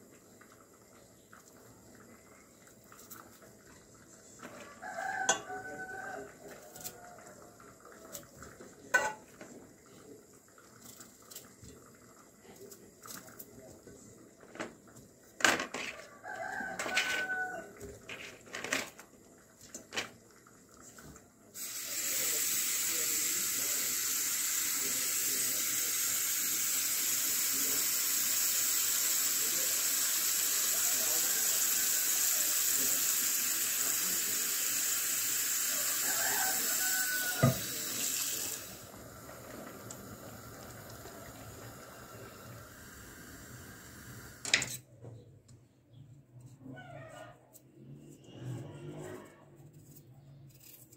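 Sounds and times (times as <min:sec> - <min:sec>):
tap running into steel pot: 0:08.9 - 0:09.6, 0:37.2 - 0:38.0.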